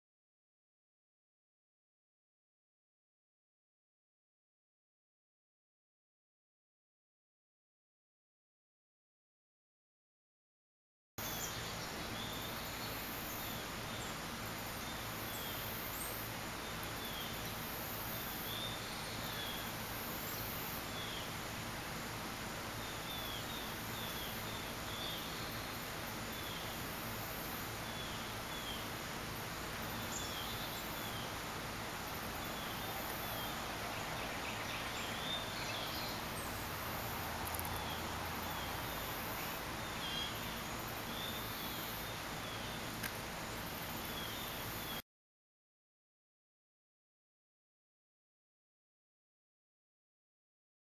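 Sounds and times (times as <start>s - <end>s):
small birds chirping: 11.2s - 45.0s
high insect buzz: 22.8s - 45.0s.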